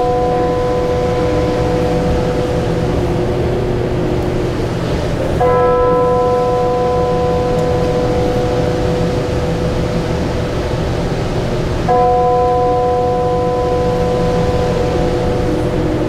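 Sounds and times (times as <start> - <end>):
bell ringing: 0.0 - 4.0, 5.4 - 10.8, 11.9 - 16.0
steady low hum: 0.0 - 16.0.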